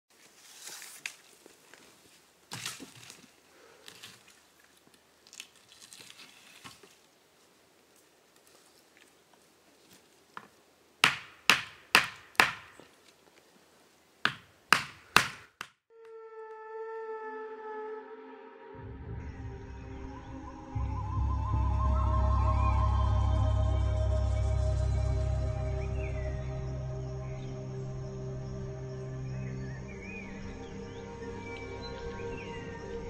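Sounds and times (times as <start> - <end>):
rustling of dry pine needles: 0.1 - 10.7.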